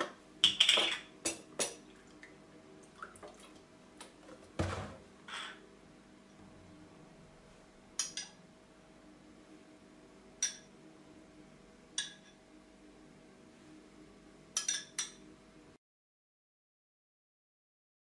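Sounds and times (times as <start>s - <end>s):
teaspoon clinking against glass bowl: 10.4s - 10.7s, 14.6s - 15.2s.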